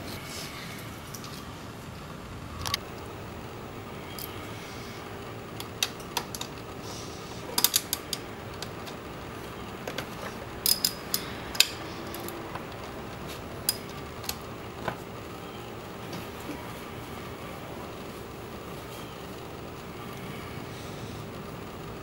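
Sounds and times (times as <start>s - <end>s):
hand ratchet clicking: 7.6s - 9.0s, 10.6s - 12.8s, 13.6s - 14.4s
metal socket clinks: 10.6s - 12.3s.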